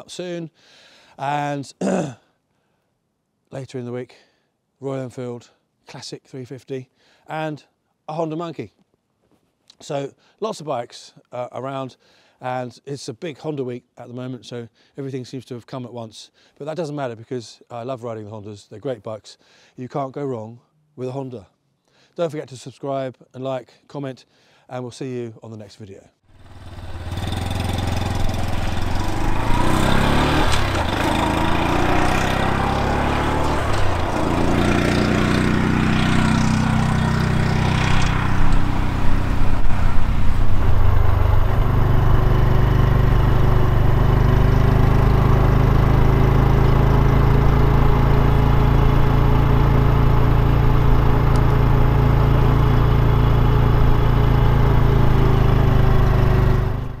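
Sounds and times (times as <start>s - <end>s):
motorcycle engine while riding: 26.3s - 57.0s.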